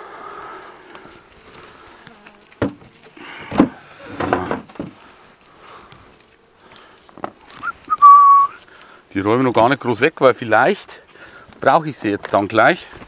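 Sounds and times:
wooden hive parts knocking: 2.4s - 5.0s
steady whistled note: 7.6s - 8.6s.

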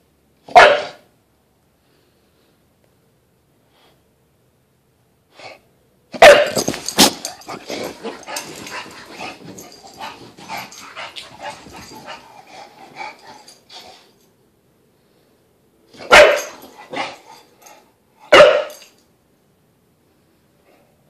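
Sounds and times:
dog barking: 0.5s - 1.1s, 6.2s - 6.7s, 16.0s - 17.2s, 18.3s - 18.9s.

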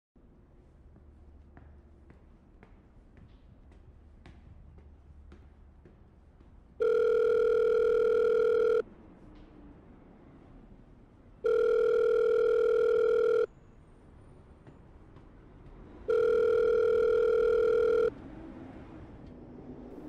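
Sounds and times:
telephone ringback tone: 6.8s - 8.8s, 11.4s - 13.5s, 16.1s - 18.1s.

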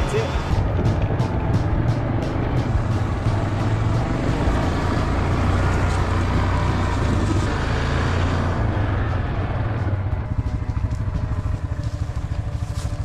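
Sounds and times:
quad bike engine running: 0.0s - 13.0s
tyres crunching on gravel: 9.3s - 13.0s.

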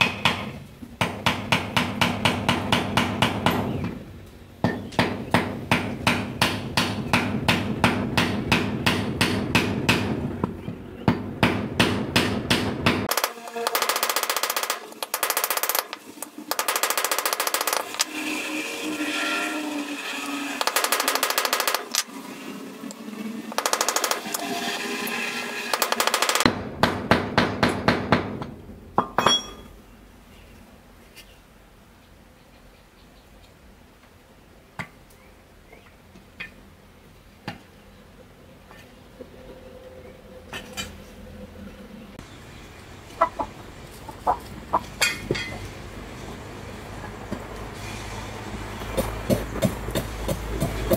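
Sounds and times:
fast rattling bursts: 16.5s - 18.0s, 20.6s - 22.1s, 23.5s - 24.4s, 25.7s - 26.5s
chickens clucking: 42.8s - 45.8s.

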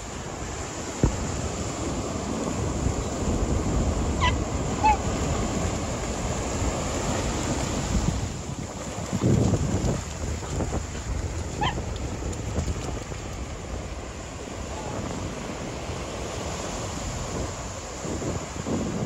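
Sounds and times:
surf washing in: 0.0s - 19.0s
wind buffeting microphone: 0.0s - 19.0s
dog yelping: 11.6s - 11.8s.

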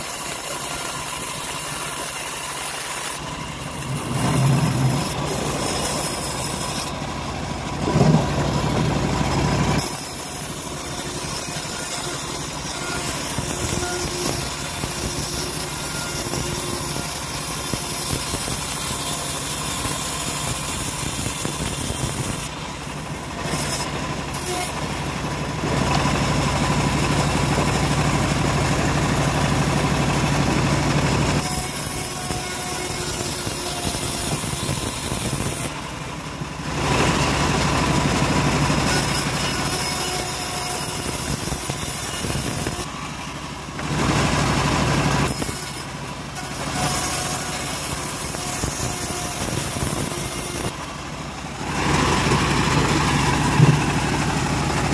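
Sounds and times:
band blade cutting wood: 0.0s - 22.7s, 23.3s - 24.8s, 30.9s - 35.8s, 38.6s - 42.9s, 45.2s - 50.9s
bandsaw mill drone: 0.0s - 54.9s.

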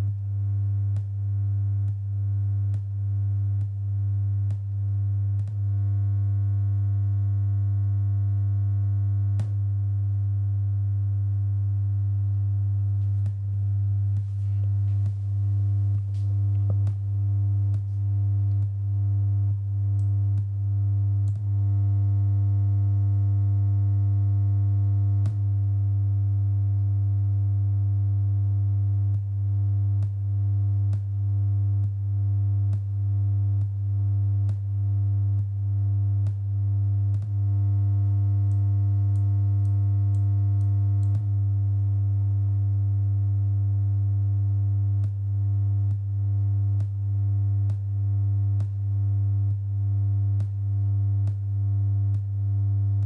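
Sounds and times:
regular clicking pulses: 4.4s - 5.8s, 13.0s - 18.8s, 21.2s - 21.6s, 37.0s - 37.5s, 38.5s - 41.3s, 45.0s - 45.2s, 46.7s - 47.9s, 48.6s - 48.9s, 50.4s - 50.6s.

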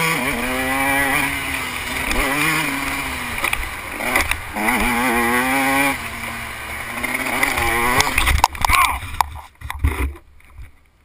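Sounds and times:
dirt bike engine revving: 0.0s - 10.2s.

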